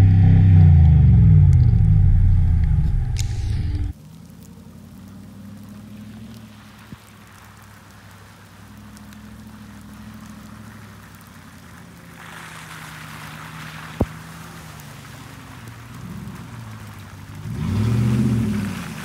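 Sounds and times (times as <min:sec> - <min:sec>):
truck engine running: 0:00.0 - 0:03.9
tyres rushing through water: 0:03.2 - 0:19.0.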